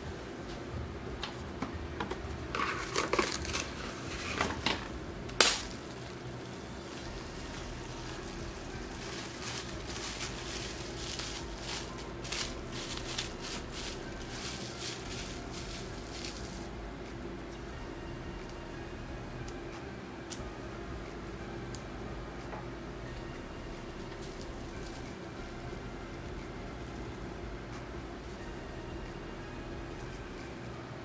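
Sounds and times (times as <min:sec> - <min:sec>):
faint steady hum: 0:00.0 - 0:31.0
cling wrap crinkling: 0:02.5 - 0:16.8, 0:23.2 - 0:27.0.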